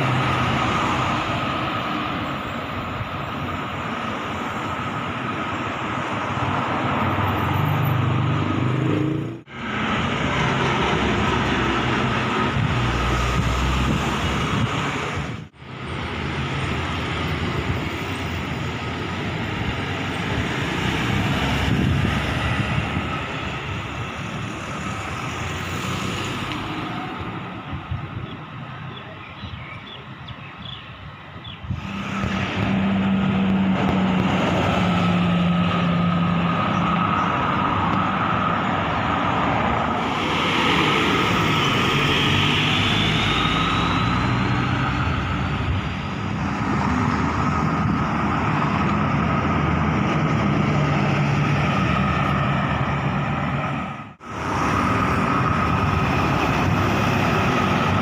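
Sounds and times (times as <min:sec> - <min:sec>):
road traffic driving past: 0:00.0 - 0:58.0.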